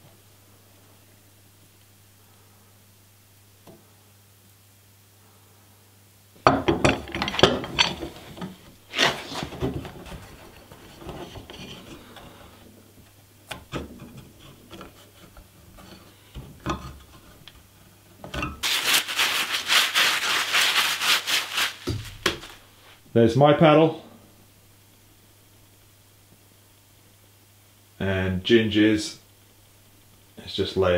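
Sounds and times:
wooden boards and clamps knocking: 6.4s - 11.7s
wet wipe rubbing hands: 18.6s - 23.0s.

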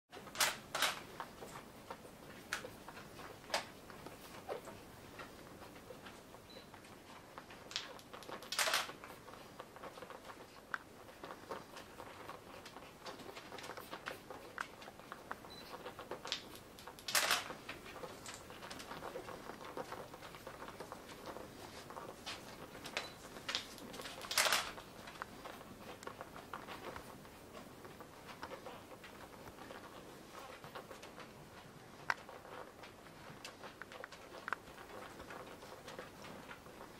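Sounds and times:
puppies suckling wet clicks: 0.2s - 36.9s.

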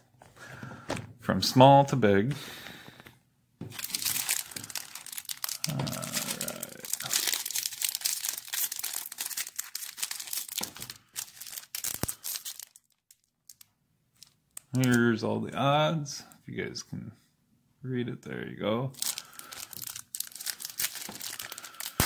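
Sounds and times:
foil wrapper tearing and crinkling: 3.7s - 15.0s, 19.0s - 22.0s.

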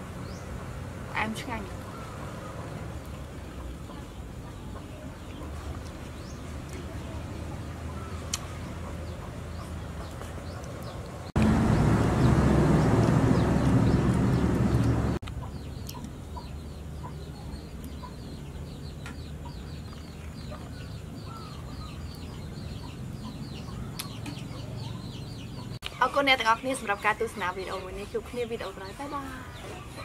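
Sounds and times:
chickens clucking: 1.6s - 11.2s, 13.1s - 30.0s
loud rushing noise: 11.4s - 15.2s
chicks peeping: 12.2s - 30.0s.

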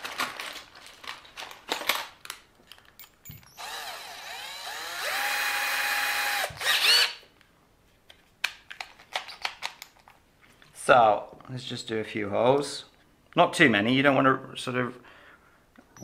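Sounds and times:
small electric drill spinning: 3.3s - 7.2s.

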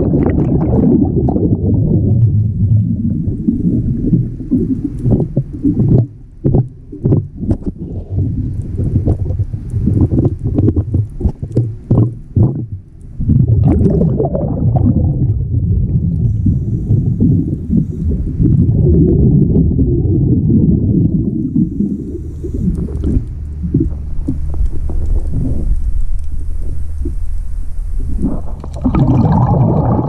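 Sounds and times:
short bubbly bursts: 0.0s - 24.4s, 28.0s - 30.0s
underwater bubbling rumble: 0.0s - 30.0s.

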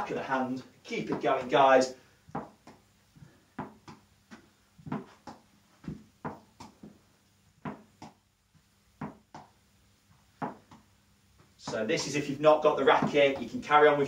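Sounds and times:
hand tapping ball: 2.3s - 2.9s, 3.6s - 7.0s, 7.6s - 8.2s, 9.0s - 9.6s, 10.4s - 12.2s
ball bouncing on carpet: 2.3s - 7.0s, 7.6s - 8.2s, 9.0s - 9.5s, 10.4s - 10.8s, 12.9s - 13.6s.

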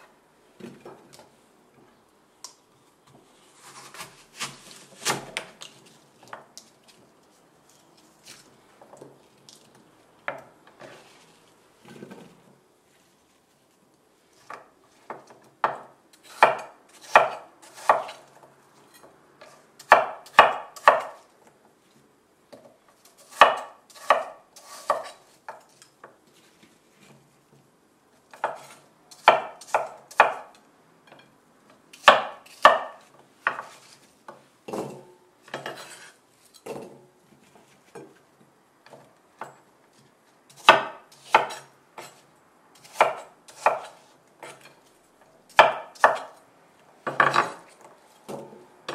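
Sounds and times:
knife chopping on wooden board: 14.5s - 18.2s, 19.8s - 21.2s, 23.2s - 25.6s, 28.3s - 30.5s, 32.0s - 33.8s, 40.5s - 42.2s, 42.8s - 44.7s, 45.5s - 46.4s.

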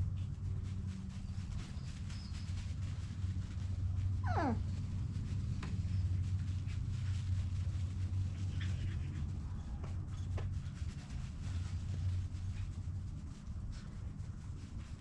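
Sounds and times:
steady low hum: 0.0s - 15.0s
puppy yelp: 4.2s - 4.6s.

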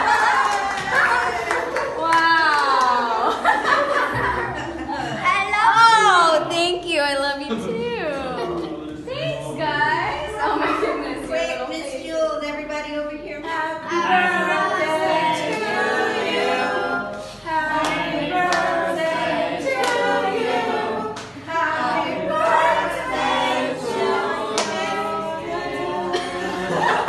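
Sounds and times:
group singing unaccompanied: 13.4s - 27.0s
hands clapping: 17.8s - 18.7s.

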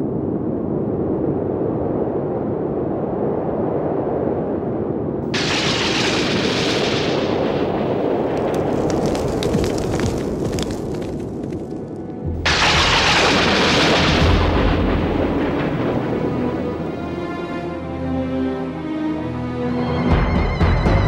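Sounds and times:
heavy rumbling: 5.3s - 17.7s
crackling clicks: 5.4s - 14.6s.

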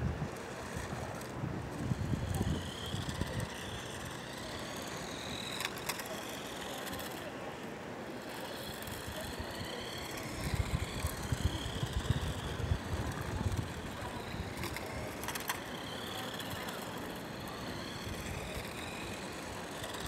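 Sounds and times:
wind buffeting microphone: 0.0s - 4.0s, 9.6s - 15.2s.

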